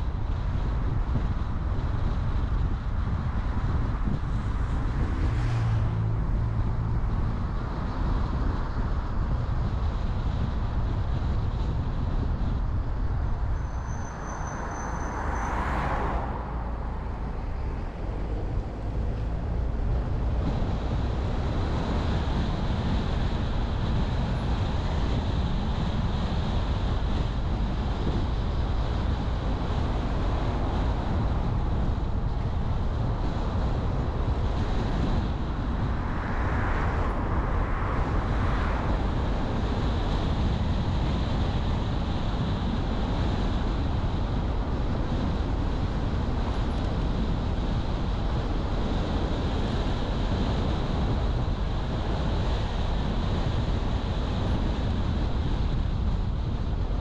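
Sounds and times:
car road noise rumble: 0.0 - 57.0
passing traffic: 0.0 - 57.0.

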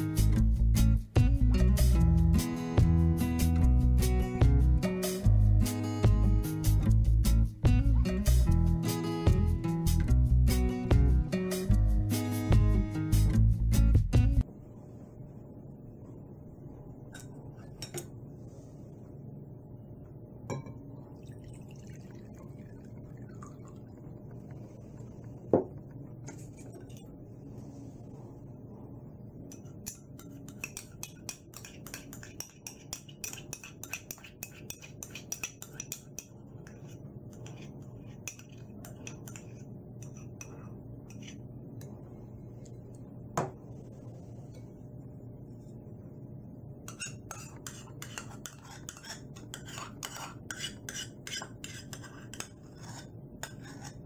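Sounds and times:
steady low hum: 0.0 - 54.0
spoon clinking against bowl: 29.5 - 36.3.

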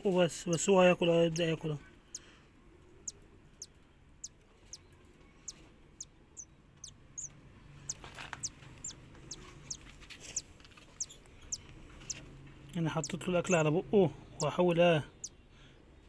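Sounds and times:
bird chick peeping: 3.0 - 12.2, 12.8 - 13.7, 14.4 - 15.4.

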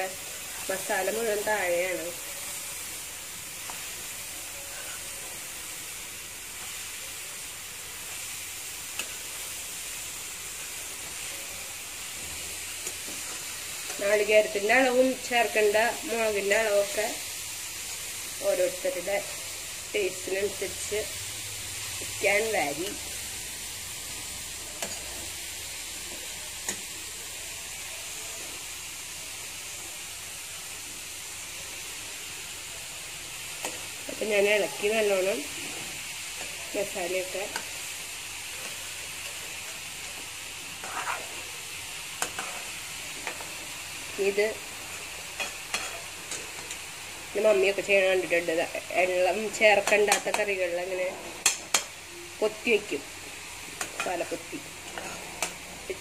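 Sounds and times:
food sizzling in a pan: 0.0 - 56.0.

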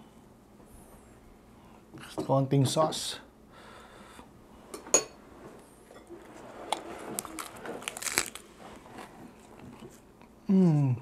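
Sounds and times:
crunching lettuce bites: 6.7 - 9.6.

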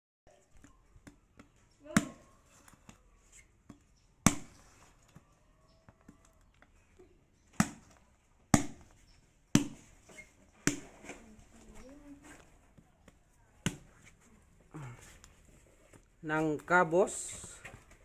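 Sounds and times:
knife chopping into fruit husk: 4.2 - 4.6, 9.6 - 9.9.

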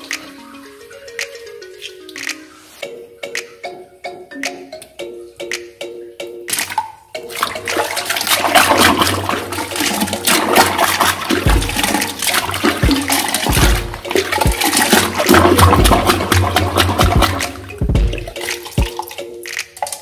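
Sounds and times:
toilet flushing: 7.3 - 19.1
dull thuds: 11.3 - 18.9.

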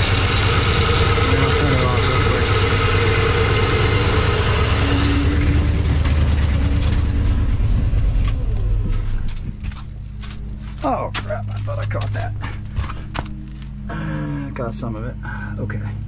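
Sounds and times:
power steering pump whine: 0.0 - 10.6
truck engine idling: 0.0 - 10.6.

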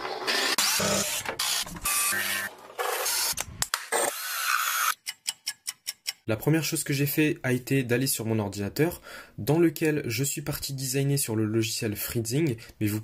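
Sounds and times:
power tools cutting wood: 0.0 - 5.0.

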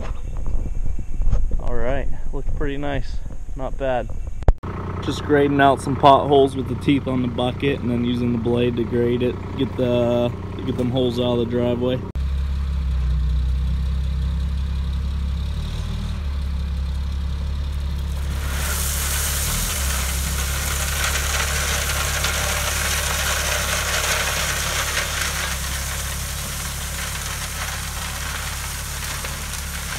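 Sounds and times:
truck engine humming: 4.6 - 29.9
gravel pouring from truck: 17.7 - 29.9.

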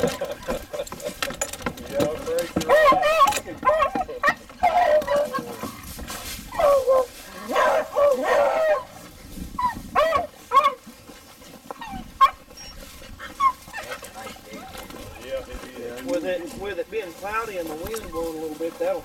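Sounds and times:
dogs yelping and whining: 0.0 - 1.5, 2.6 - 11.0, 11.6 - 15.0.

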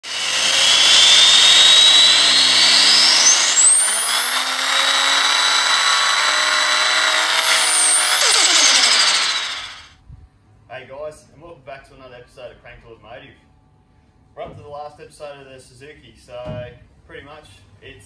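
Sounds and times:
engine revving with high whine: 0.0 - 9.9.

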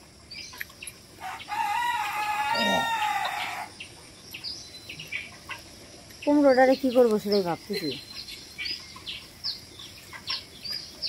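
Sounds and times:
rooster crowing: 1.2 - 3.7.

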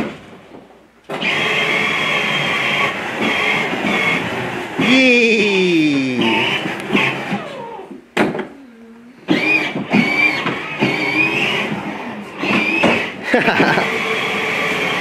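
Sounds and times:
toy car electric motors whining: 1.1 - 5.1, 6.2 - 8.5, 9.2 - 15.0.

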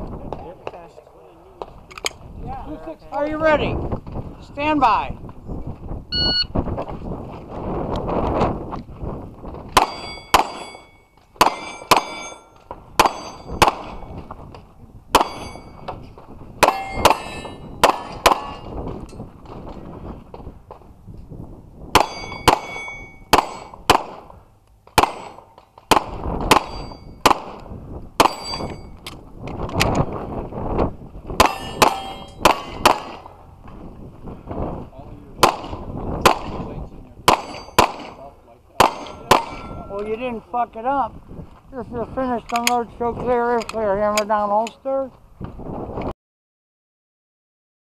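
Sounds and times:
electronic shot timer beep: 6.2 - 6.5
pistol shots: 9.8 - 10.7, 11.4 - 12.3, 13.0 - 14.1, 15.1 - 15.6, 16.6 - 18.7, 21.9 - 24.3, 24.9 - 27.6, 31.4 - 33.3, 35.4 - 36.7, 37.3 - 38.2, 38.8 - 39.8
bullet ringing steel plate: 9.8 - 14.1, 15.2 - 15.9, 16.6 - 18.7, 22.0 - 23.8, 25.0 - 25.5, 26.5 - 27.2, 28.2 - 29.0, 31.4 - 33.2, 37.3 - 38.2, 38.8 - 40.0.

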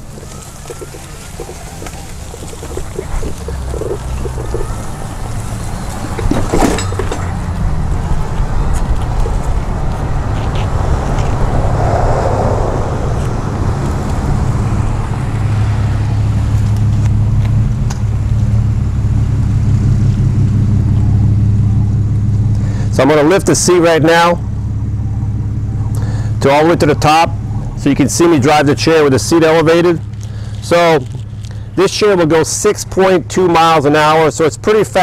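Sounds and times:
power chair motors humming: 0.0 - 9.4.

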